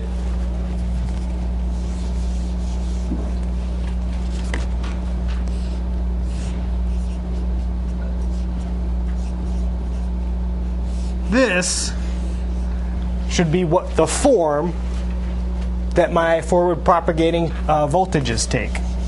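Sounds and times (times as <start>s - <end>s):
whiteboard erasing: 0.0s - 12.7s, 18.0s - 19.0s
low electrical hum: 0.0s - 19.0s
marker writing strokes: 0.8s - 11.4s, 18.2s - 19.0s.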